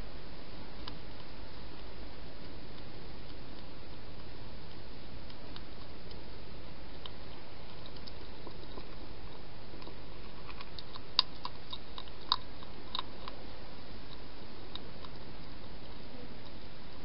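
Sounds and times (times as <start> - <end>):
background hiss: 0.0 - 17.0
hedgehog chewing crunchily: 0.8 - 16.6.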